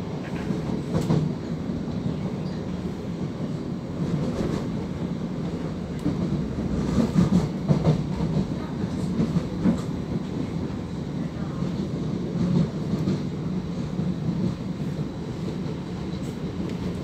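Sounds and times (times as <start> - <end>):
train wheels rumbling on rail: 0.0 - 17.0
train knocks: 0.2 - 2.8, 5.5 - 10.8.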